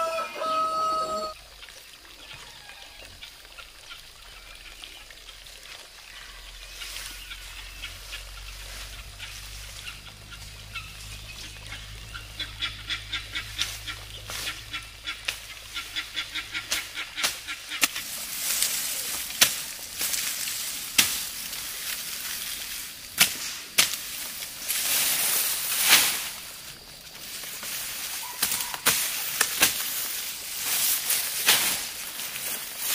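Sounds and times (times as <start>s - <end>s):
poultry calling: 0.0s - 1.4s, 6.1s - 17.9s, 28.1s - 28.9s.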